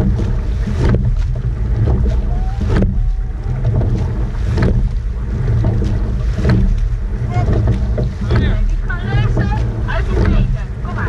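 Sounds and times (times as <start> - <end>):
oars knocking in oarlocks: 0.0 - 11.0
water along hull: 0.0 - 11.0
wind on microphone: 0.0 - 11.0.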